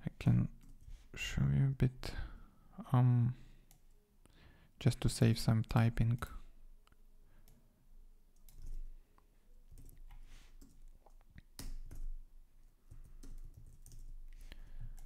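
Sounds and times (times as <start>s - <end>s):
keyboard keystrokes and clicks: 8.3s - 8.9s, 9.7s - 15.0s.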